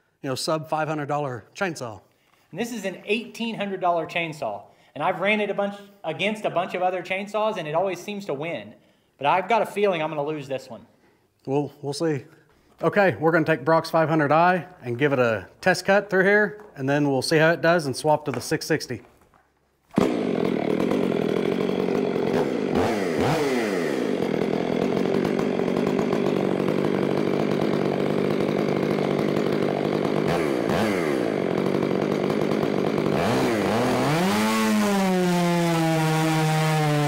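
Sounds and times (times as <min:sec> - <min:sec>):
chainsaw cutting log: 0:19.9 - 0:37.0.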